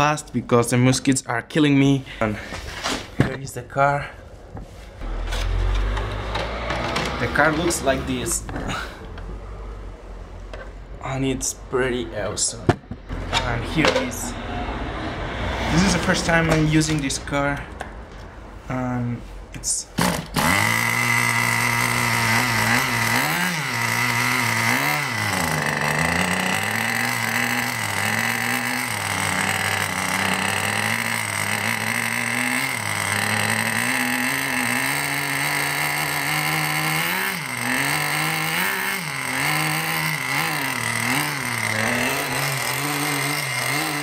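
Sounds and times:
small model engine revving: 0:20.0 - 0:44.0.

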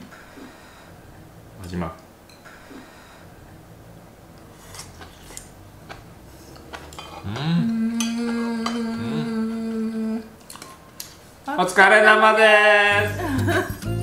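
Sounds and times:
chopsticks and dishes clicking: 0:04.7 - 0:08.9, 0:10.4 - 0:11.2
second voice sliding up: 0:07.2 - 0:10.3
woman singing long ooo note: 0:07.3 - 0:10.4.

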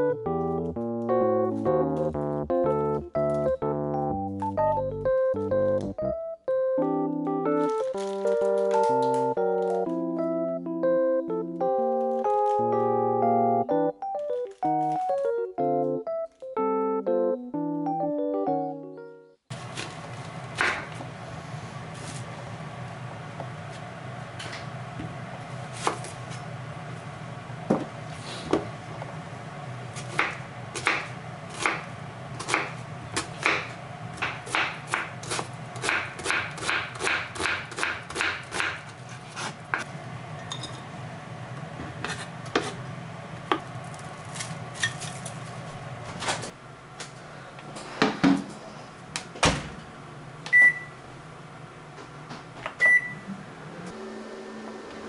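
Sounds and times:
knife chopping on cutting board: 0:32.4 - 0:38.8.

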